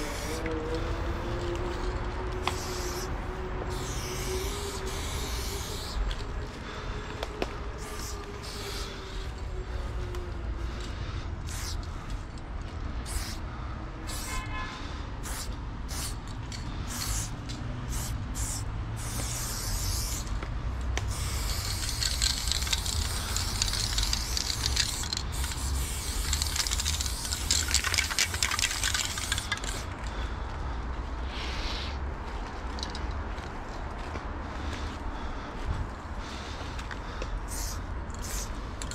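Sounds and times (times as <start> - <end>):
spray paint can hissing: 0.0 - 1.8, 2.4 - 9.9, 11.4 - 12.3, 13.0 - 13.4, 14.0 - 14.4, 15.2 - 20.4, 21.0 - 30.0, 37.5 - 38.9.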